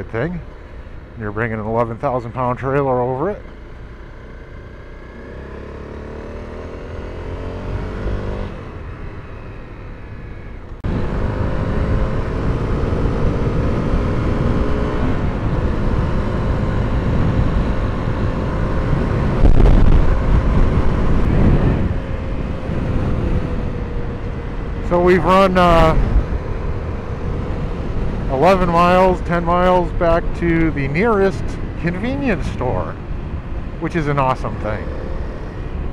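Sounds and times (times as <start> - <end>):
motorcycle engine accelerating: 0.0 - 35.9
wind rush on microphone: 10.8 - 35.9.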